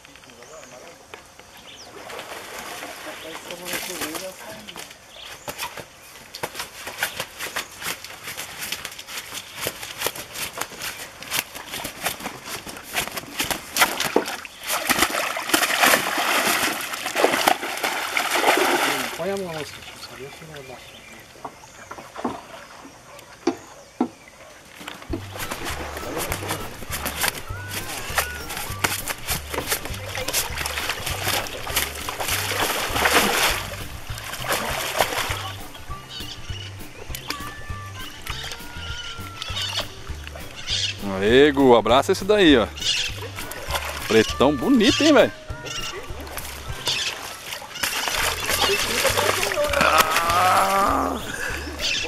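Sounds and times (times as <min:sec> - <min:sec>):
water splashing: 0:01.8 - 0:23.4, 0:24.4 - 0:52.0
fish thrashing in water: 0:01.9 - 0:05.0, 0:06.4 - 0:20.4, 0:24.8 - 0:41.3, 0:42.4 - 0:52.0
wet net bag rustling and slapping: 0:03.6 - 0:19.2, 0:24.9 - 0:35.9, 0:46.1 - 0:51.3
background music with bass beat: 0:25.1 - 0:47.1.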